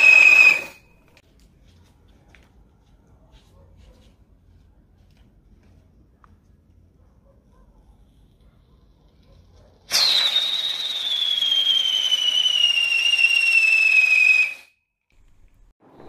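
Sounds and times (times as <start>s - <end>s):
firework whistling: 0.0s - 1.1s, 9.9s - 14.8s.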